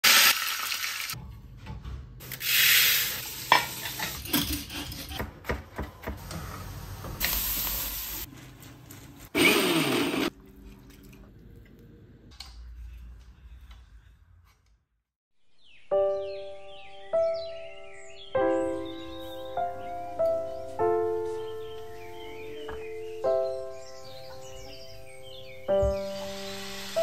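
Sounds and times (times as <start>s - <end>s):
food sizzling in a pan: 0.0s - 1.2s, 7.2s - 8.3s, 26.0s - 27.0s
utensils clinking and scraping: 3.5s - 5.2s.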